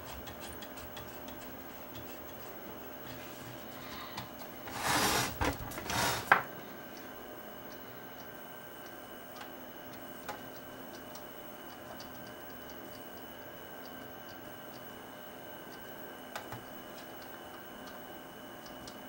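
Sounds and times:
hands rubbing plastic cabinet: 4.7 - 6.3.

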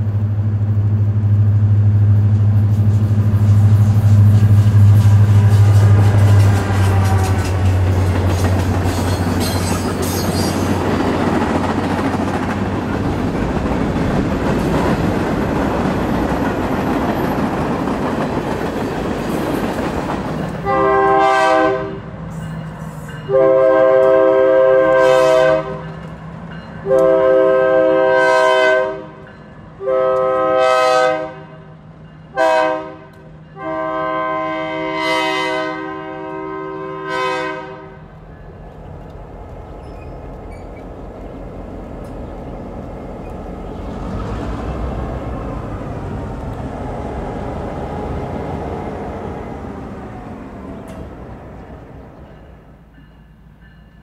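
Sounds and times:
train cars rumbling over rails: 0.0 - 54.0
locomotive air horn blasts: 2.7 - 7.9, 20.6 - 22.1, 23.3 - 25.9, 26.8 - 29.2, 29.8 - 31.6, 32.3 - 38.1.

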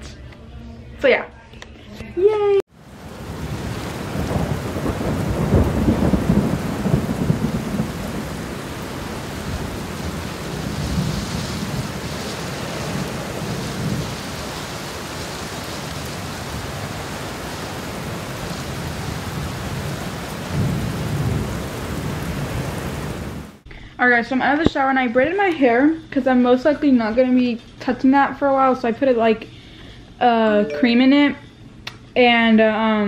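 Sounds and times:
heavy rain downpour: 2.7 - 23.6
gusting wind: 2.8 - 23.6.

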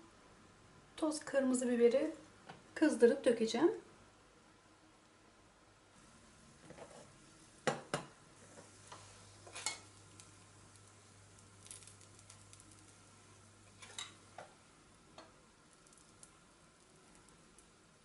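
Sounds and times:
oil sizzling: 6.0 - 18.0.

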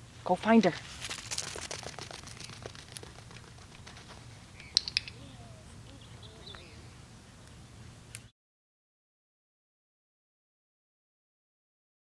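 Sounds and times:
outdoor background hum: 0.0 - 8.3
sharp clicks: 4.6 - 5.2
faint chirps: 4.6 - 7.0.

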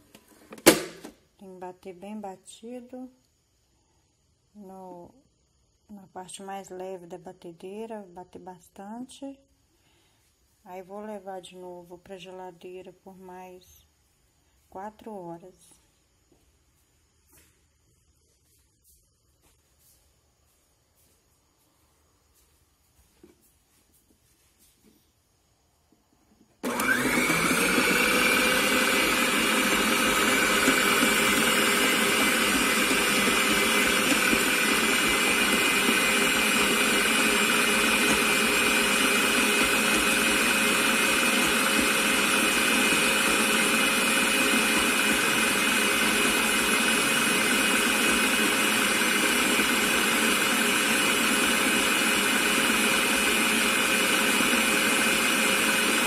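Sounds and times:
stand mixer motor whine: 26.6 - 56.0.

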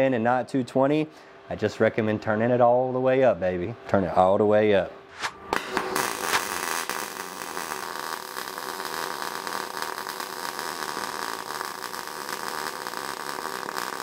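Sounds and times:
welding arc hissing and crackling: 5.2 - 14.0.

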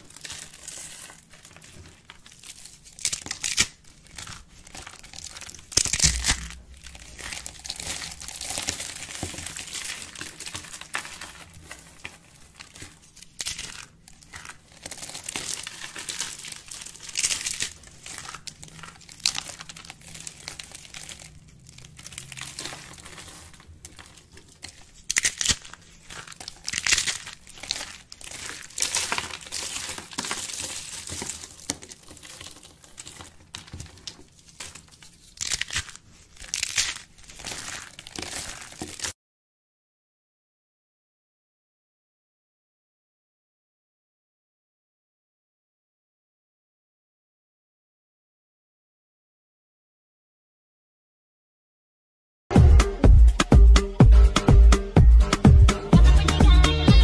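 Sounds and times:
soap shavings crinkling by hand: 0.0 - 39.2.

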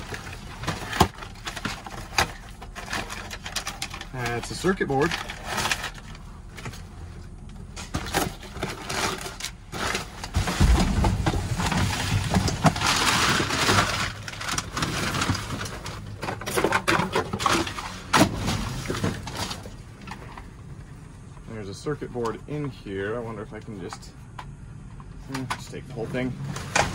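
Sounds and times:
packaging rustling and crinkling: 0.0 - 20.6
dull rumble: 0.0 - 25.3.

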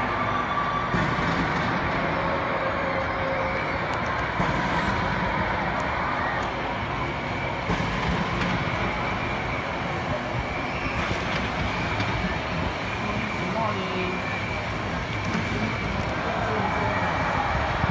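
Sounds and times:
urban background rumble: 0.0 - 17.9.

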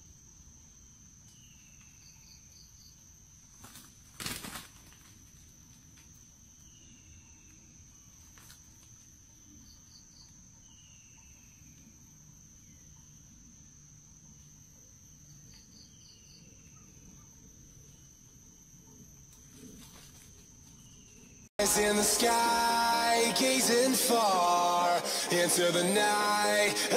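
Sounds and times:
high-pitched insect drone: 21.6 - 26.9.

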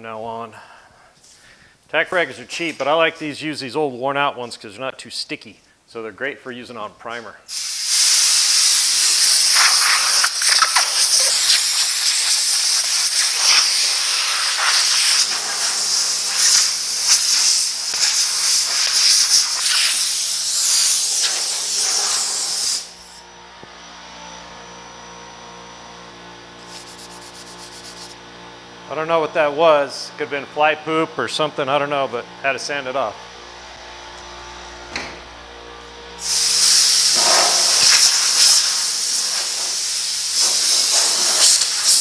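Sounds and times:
compressed air blow gun hissing: 7.5 - 23.2, 36.2 - 42.0.

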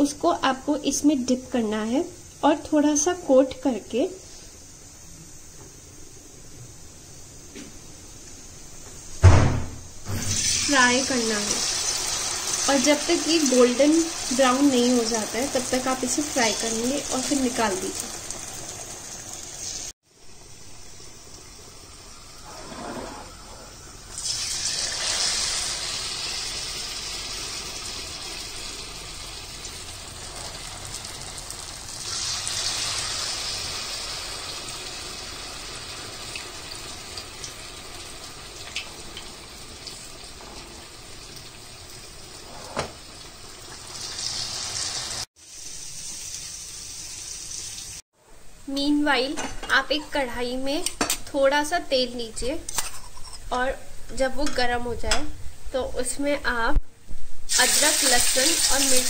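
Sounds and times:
food deep-frying in oil: 9.0 - 22.6, 23.2 - 48.0, 57.5 - 59.0.

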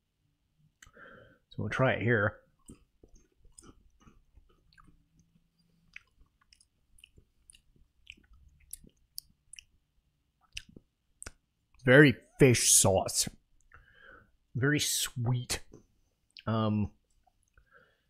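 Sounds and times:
chewing crispy chip: 2.6 - 9.8.

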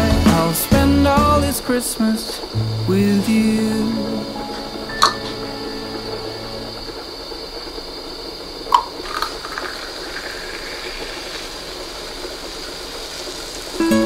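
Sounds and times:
soda fizzing hiss: 0.0 - 14.0
glass clink: 4.9 - 5.4.

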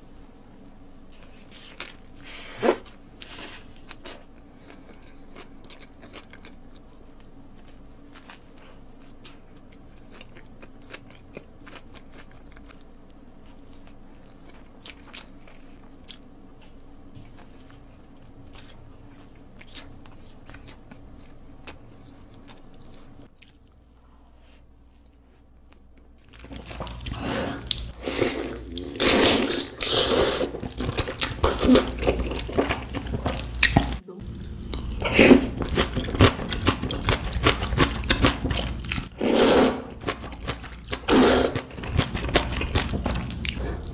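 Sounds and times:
chewing bread: 2.8 - 23.9, 24.8 - 39.2, 40.0 - 43.9
slurping noodles: 26.5 - 34.0, 34.8 - 40.3, 40.9 - 43.9.

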